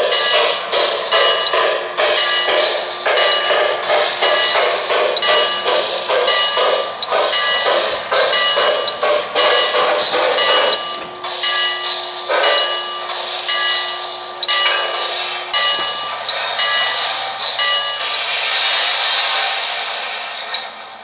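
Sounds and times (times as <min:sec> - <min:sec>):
model steam locomotive chuffing: 0:00.0 - 0:21.0.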